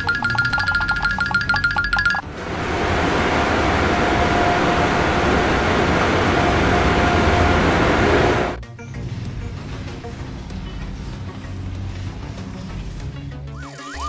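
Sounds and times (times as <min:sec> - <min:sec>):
steady rushing blower noise: 0:02.2 - 0:08.6.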